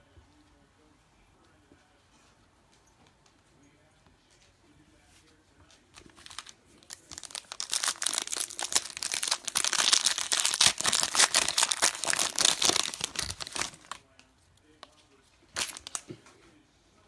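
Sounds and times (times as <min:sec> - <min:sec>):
foil wrapper tearing and crinkling: 0:06.0 - 0:14.0, 0:15.6 - 0:16.0.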